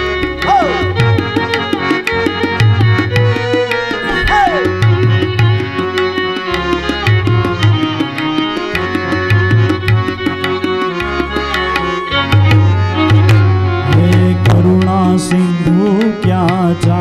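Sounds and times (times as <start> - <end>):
keyboard melody: 0.0 - 17.0
hand drum beat: 0.3 - 17.0
deep drum pattern: 2.4 - 5.8.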